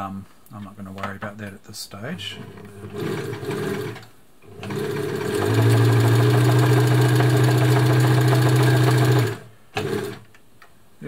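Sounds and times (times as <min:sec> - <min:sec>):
sewing machine stitching: 0:02.3 - 0:10.3.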